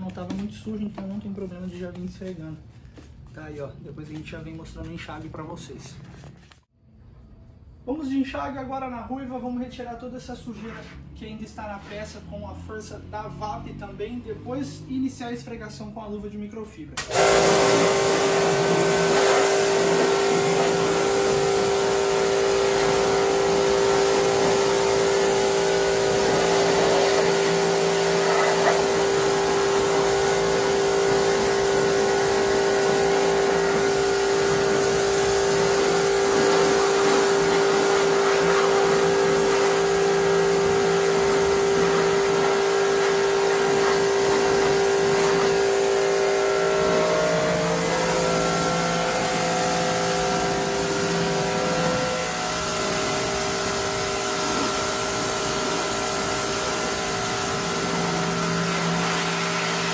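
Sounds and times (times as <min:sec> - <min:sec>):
pressure washer humming: 0:17.0 - 0:59.9
water jet hissing: 0:17.0 - 0:59.9.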